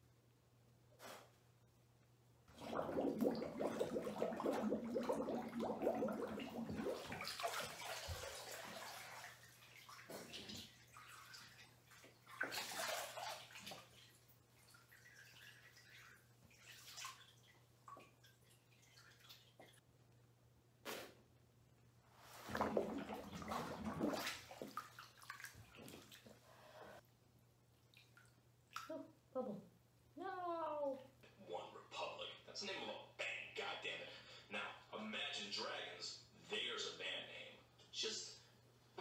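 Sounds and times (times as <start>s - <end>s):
bathwater sloshing and splashing: 2.5s - 19.8s, 22.1s - 26.9s, 27.7s - 28.9s.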